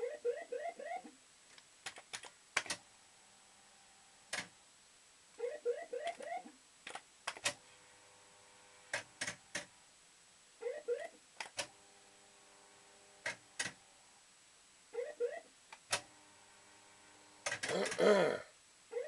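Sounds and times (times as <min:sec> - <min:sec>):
faint steady hum: 0:00.0 - 0:19.0
electronic chirping: 0:05.4 - 0:06.5.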